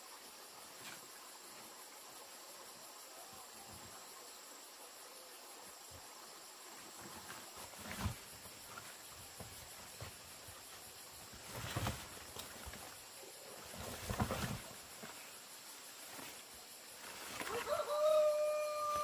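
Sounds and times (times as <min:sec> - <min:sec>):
high-pitched insect chorus: 0:00.0 - 0:19.0
large leaves rustling: 0:06.1 - 0:19.0
bananas handled in woven basket: 0:13.6 - 0:15.3.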